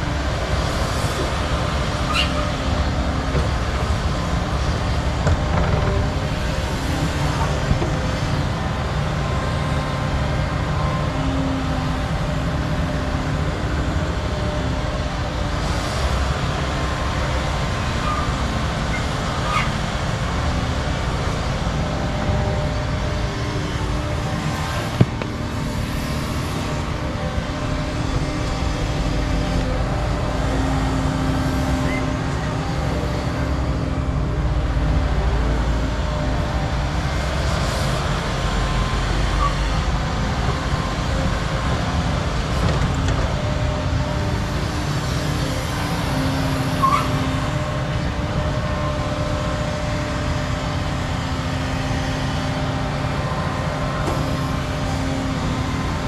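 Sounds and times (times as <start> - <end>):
excavator diesel engines under load: 0.0 - 56.0.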